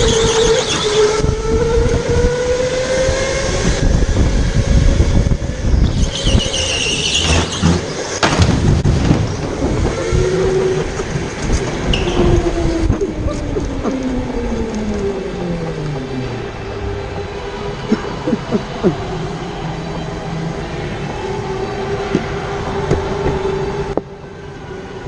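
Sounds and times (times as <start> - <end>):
tyre squeal: 0.0 - 1.2, 5.8 - 8.2
heavy low rumble: 0.0 - 24.8.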